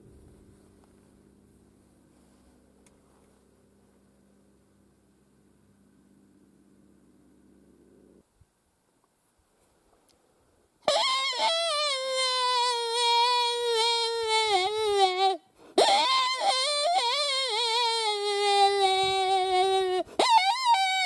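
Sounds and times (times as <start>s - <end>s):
short quick yips: 10.9s - 12.7s, 15.8s - 17.7s, 20.0s - 21.0s
wolf howls: 15.8s - 21.0s.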